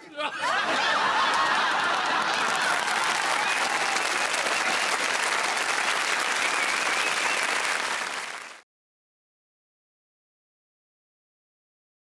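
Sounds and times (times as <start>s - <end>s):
audience applauding: 0.5s - 8.6s.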